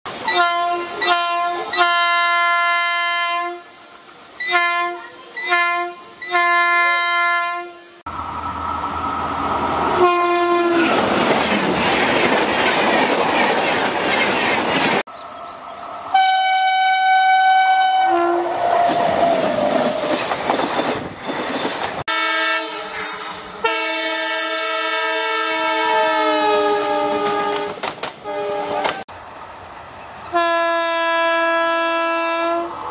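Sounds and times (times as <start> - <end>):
train rumbling past: 0.1 - 32.9
locomotive horn: 0.3 - 3.8, 4.4 - 8.1, 10.0 - 11.0, 16.1 - 19.2, 22.1 - 29.0, 30.3 - 32.8
wheels clickety-clack: 10.7 - 15.0, 18.8 - 22.0, 27.2 - 28.2.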